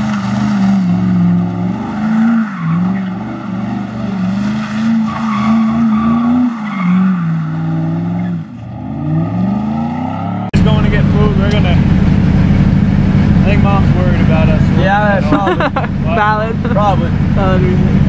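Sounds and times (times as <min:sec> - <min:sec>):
tyres squealing and skidding: 0:00.0 - 0:10.5
car engine revving: 0:00.0 - 0:18.0.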